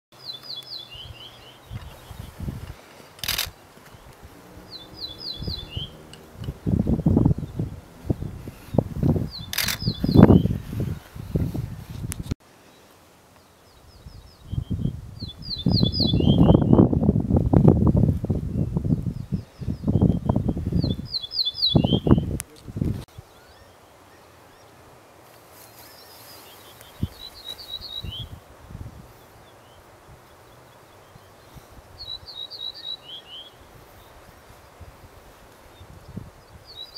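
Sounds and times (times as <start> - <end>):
bird singing: 0.2 - 2.5, 3.3 - 10.6, 12.7 - 17.1, 18.4 - 22.4, 23.1 - 24.8, 25.6 - 28.4, 29.4 - 34.8, 35.7 - 36.9
low rumbling: 3.3 - 12.3.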